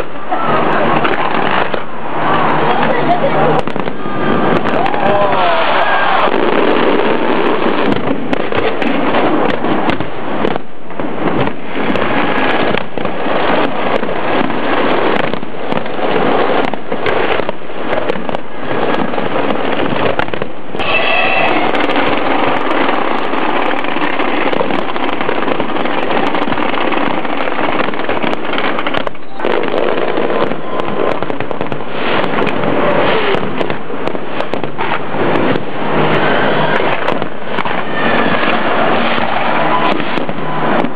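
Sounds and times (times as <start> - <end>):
fireworks crackling and banging: 0.0 - 40.9.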